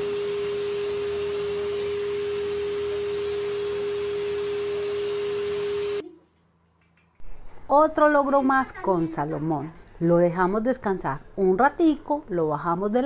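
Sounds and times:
hair dryer running: 0.0 - 6.0.

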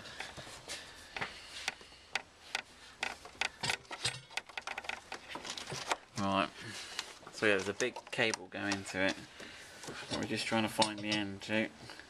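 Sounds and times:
plastic parts clicking: 1.7 - 6.2, 7.0 - 9.2.

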